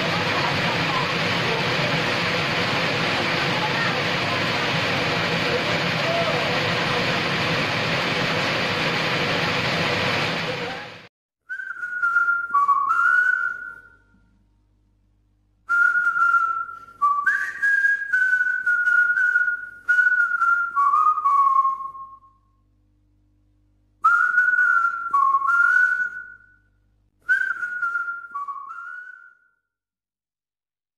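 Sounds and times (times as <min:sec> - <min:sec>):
person whistling a melody: 0:11.4 - 0:14.1, 0:15.7 - 0:22.4, 0:24.0 - 0:26.6, 0:27.2 - 0:29.6.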